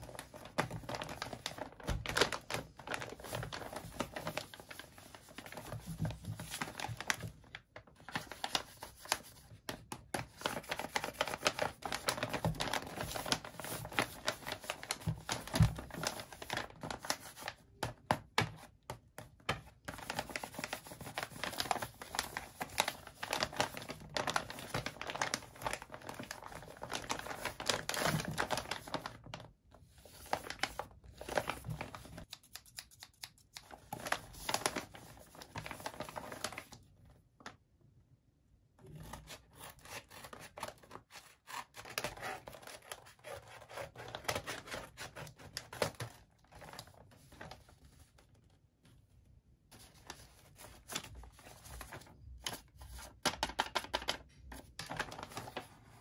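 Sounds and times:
paper bag rustling: 0.0s - 9.2s, 19.9s - 29.4s, 53.8s - 56.0s.

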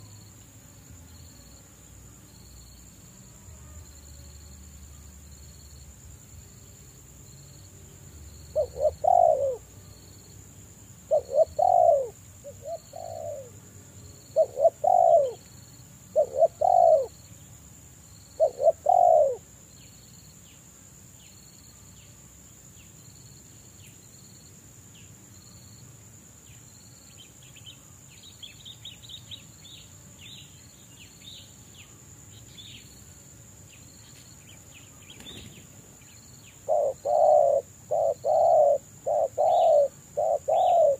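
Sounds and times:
insect hiss: 0.0s - 40.9s
dove cooing: 8.5s - 9.7s, 11.1s - 13.6s, 14.3s - 15.4s, 16.1s - 17.1s, 18.4s - 19.4s, 36.6s - 40.9s
faint small-bird chirps: 33.7s - 40.9s.

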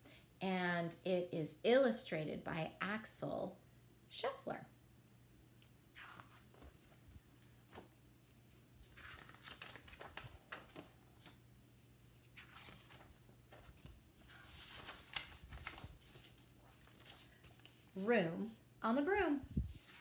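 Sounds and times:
book pages turning: 5.9s - 18.0s, 19.7s - 20.0s.

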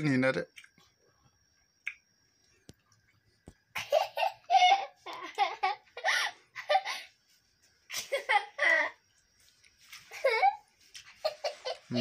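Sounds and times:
young child laughing: 3.8s - 7.0s, 10.1s - 12.0s.

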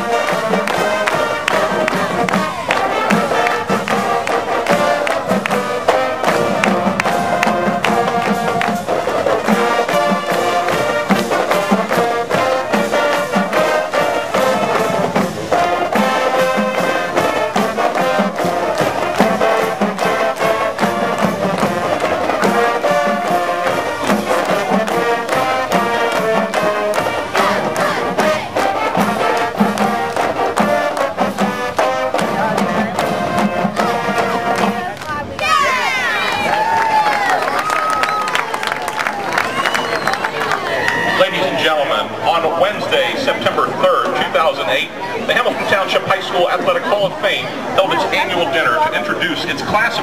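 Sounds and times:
steady drum beat: 0.0s - 35.6s
marching band brass tune: 0.0s - 50.0s.

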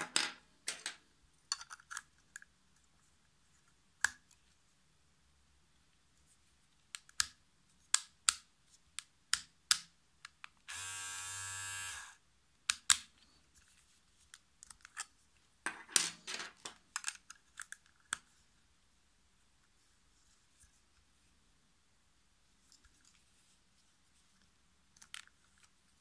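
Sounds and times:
hair clipper buzzing: 10.7s - 12.2s.

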